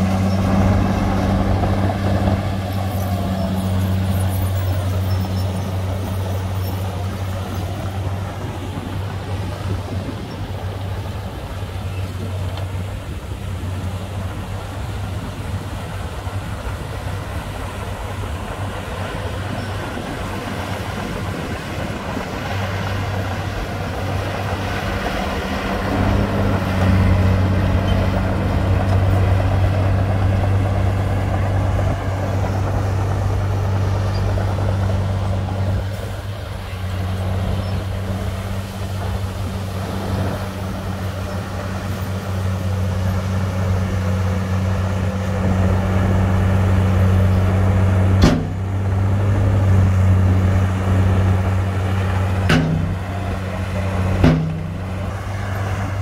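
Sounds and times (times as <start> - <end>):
bulldozer diesel engine running: 0.0 - 56.0
sharp knock: 54.2 - 54.8.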